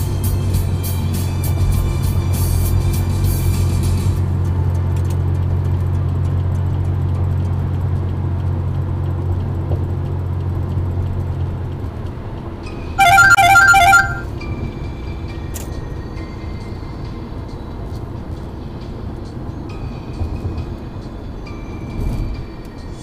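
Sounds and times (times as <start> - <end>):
road and engine noise inside car: 0.0 - 23.0
loud warbling tone: 13.0 - 14.2.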